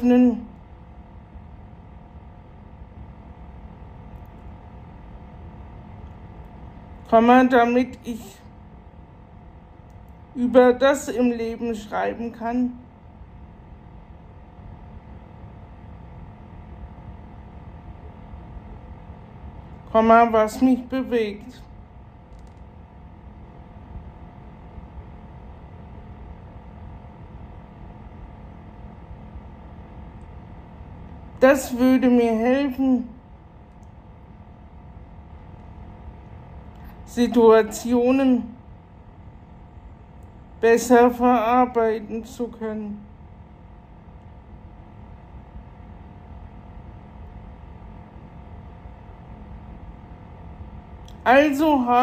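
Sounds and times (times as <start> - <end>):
low room hum: 0.0 - 52.0.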